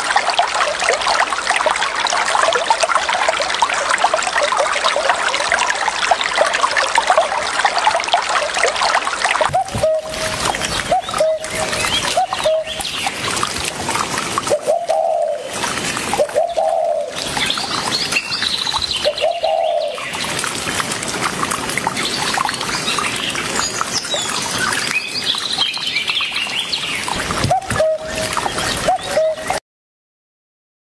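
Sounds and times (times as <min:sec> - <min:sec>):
low bird calls: 0:09.5 - 0:13.2, 0:16.2 - 0:20.2, 0:27.4 - 0:29.6.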